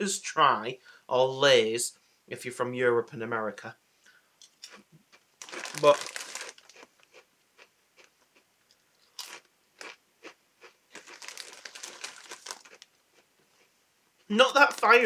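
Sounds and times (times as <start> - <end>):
potato crisps crunching: 5.4 - 8.1, 9.0 - 13.2.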